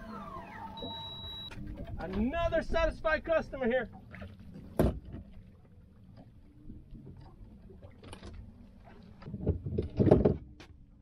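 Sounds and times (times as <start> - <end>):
boat and water background: 0.0 - 11.0
knocks and thumps on boat: 4.0 - 5.4, 9.2 - 10.8.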